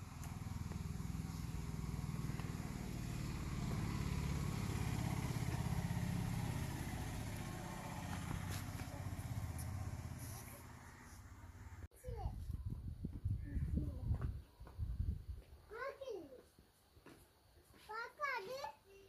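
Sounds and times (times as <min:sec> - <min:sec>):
vehicle engine passing: 0:00.0 - 0:11.9.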